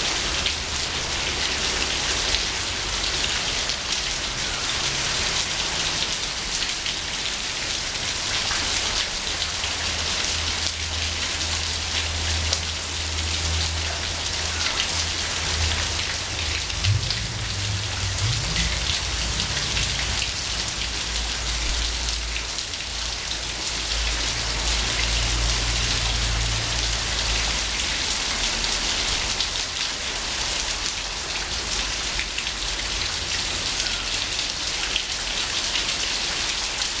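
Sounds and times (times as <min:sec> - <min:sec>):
heavy rain on tiled roof: 0:00.0 - 0:37.0
water dripping off gutter: 0:00.0 - 0:37.0
low rumble: 0:15.2 - 0:22.3.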